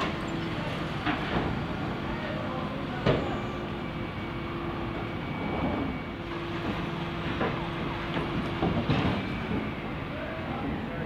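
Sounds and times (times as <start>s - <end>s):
lorry engine and hydraulics hum: 0.0s - 11.0s.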